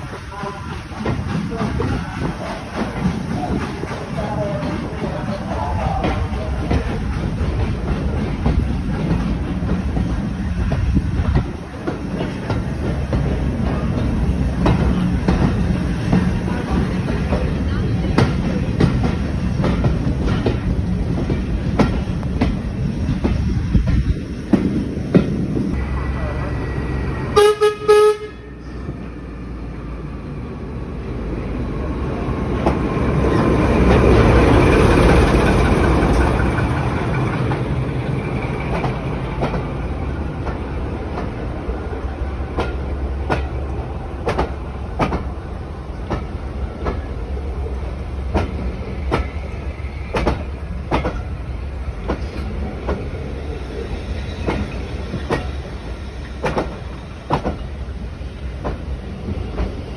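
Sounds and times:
diesel locomotive engine rumbling: 0:00.0 - 0:59.9
wheels clicking over rail joints: 0:48.3 - 0:53.2, 0:53.8 - 0:59.8.

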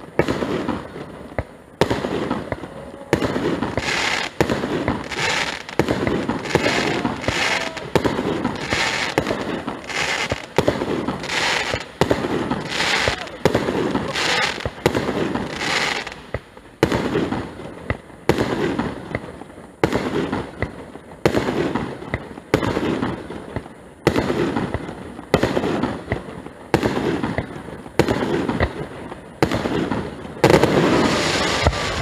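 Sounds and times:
firework shells bursting: 0:00.0 - 0:18.0, 0:29.4 - 0:32.0.

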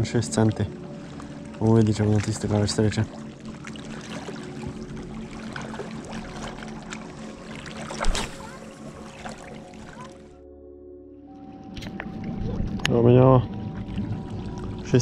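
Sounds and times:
water lapping among rocks: 0:00.9 - 0:10.3.

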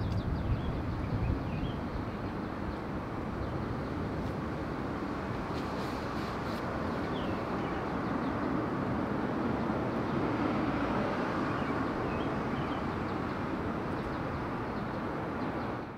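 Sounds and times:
distant traffic rumble: 0:00.0 - 0:15.9.

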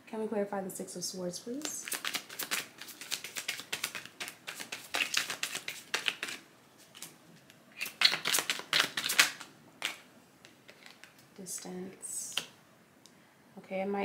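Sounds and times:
cards being shuffled: 0:01.6 - 0:11.3.

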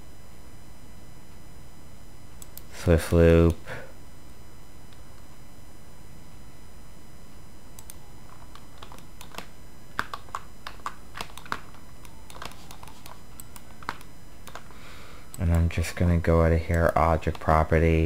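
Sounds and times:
steady background noise: 0:00.0 - 0:18.0
keyboard and mouse clicks: 0:07.8 - 0:14.7.

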